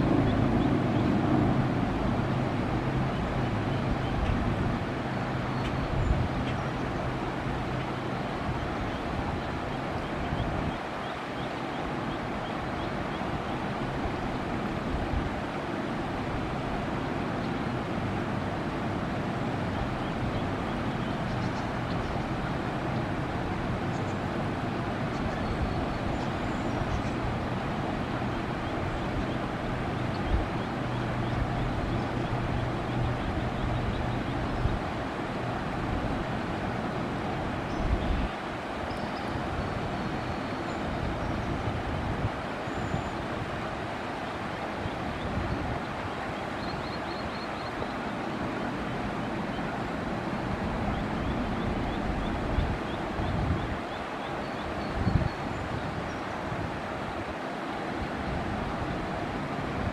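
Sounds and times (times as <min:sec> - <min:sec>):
water rushing over a dam: 0:00.0 - 0:59.9.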